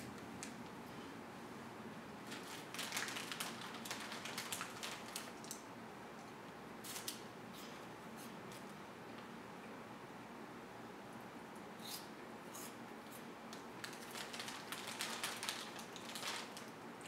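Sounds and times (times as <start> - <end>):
snack bag crinkling: 2.3 - 5.6, 13.8 - 16.7.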